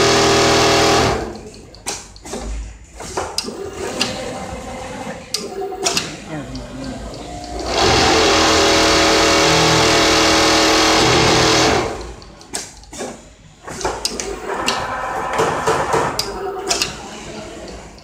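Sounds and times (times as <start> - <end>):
sewing machine whirring: 0.0 - 1.5, 3.4 - 12.4, 13.0 - 18.0.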